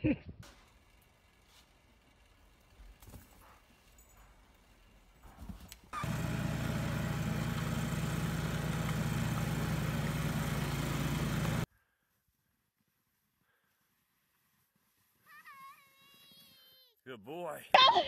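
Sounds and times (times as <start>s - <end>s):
snowblower engine running: 0.4s - 11.7s.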